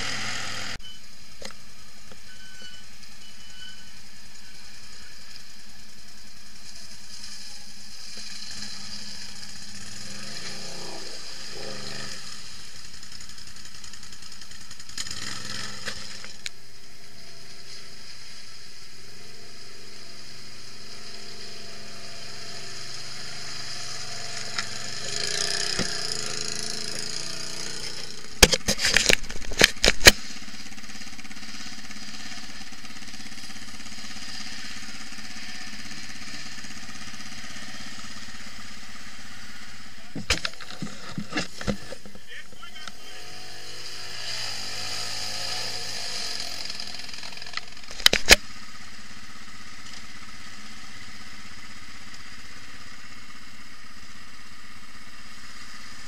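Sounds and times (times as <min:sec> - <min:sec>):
quad bike engines revving: 0:00.0 - 0:56.0.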